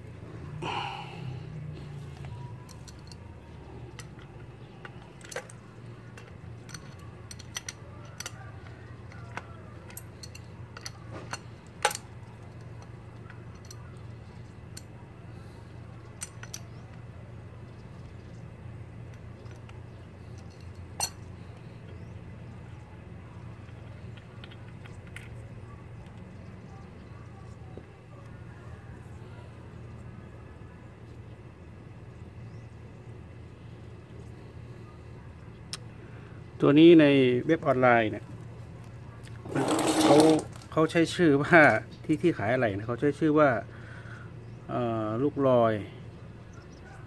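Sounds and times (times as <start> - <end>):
metal tools clinking: 2.6 - 8.4, 9.1 - 13.9, 16.1 - 16.9, 19.4 - 21.6, 39.5 - 40.7.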